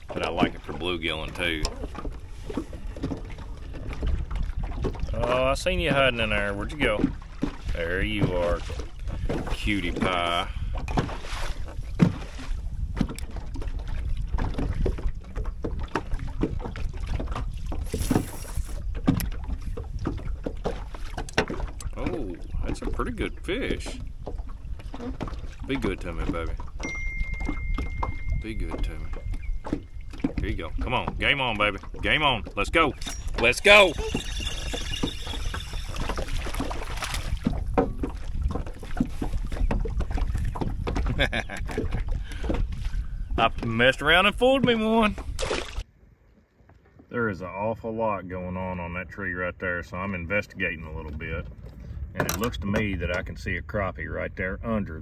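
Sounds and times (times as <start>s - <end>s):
wind on microphone: 0.0s - 45.8s
small waves lapping against boat hull: 0.0s - 49.2s, 49.9s - 53.5s
fishing reel cranking: 33.0s - 36.3s.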